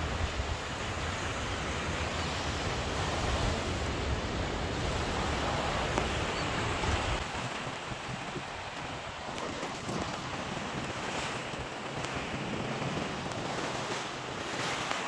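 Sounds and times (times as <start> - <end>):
surf washing on shore: 0.0 - 15.0
wind rumbling on microphone: 0.0 - 15.0.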